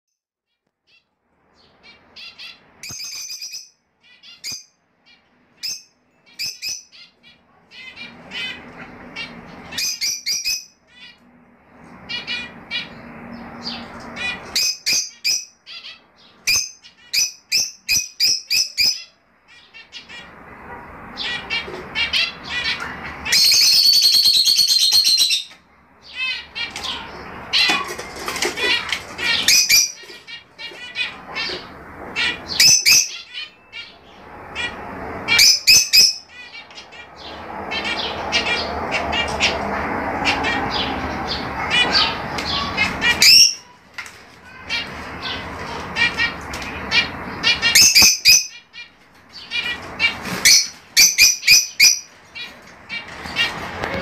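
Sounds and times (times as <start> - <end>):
lovebirds chirping: 0.5 - 54.0
rustling noise: 26.7 - 32.2.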